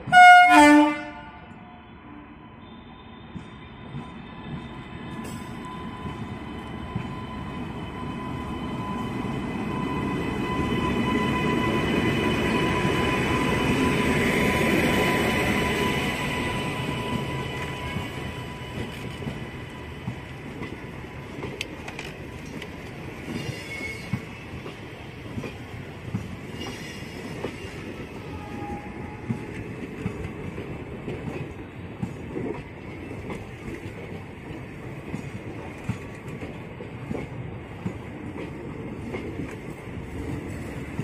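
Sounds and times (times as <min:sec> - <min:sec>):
wheel squeal: 0:23.3 - 0:24.4.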